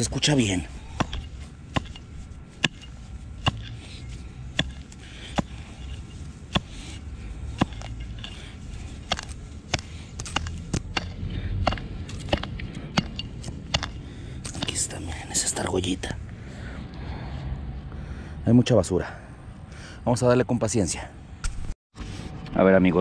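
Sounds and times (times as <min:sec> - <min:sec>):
digging tool chopping soil: 0:00.0 - 0:15.0.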